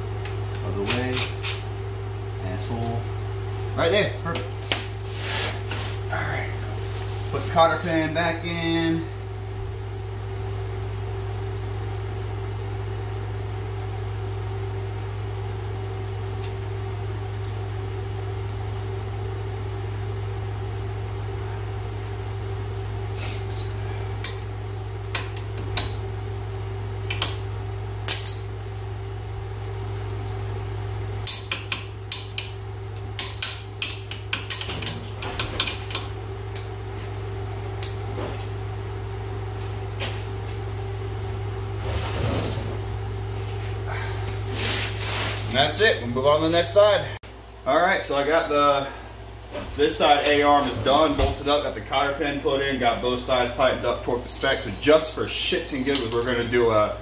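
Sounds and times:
shop fan hum: 0.0 - 57.0
hand tools clicking on metal: 31.2 - 36.7.

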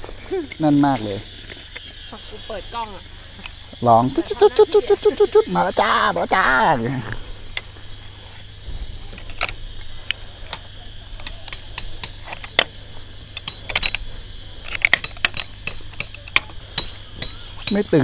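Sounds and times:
camping gear clinking: 0.0 - 2.6, 9.1 - 18.0
cicadas buzzing: 0.0 - 18.0.

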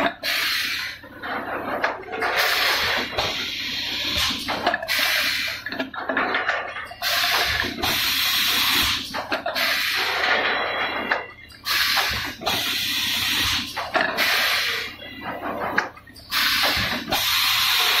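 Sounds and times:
compressed air hiss bursts: 0.2 - 1.0, 2.4 - 5.6, 7.0 - 10.2, 11.6 - 15.0, 16.3 - 18.0.

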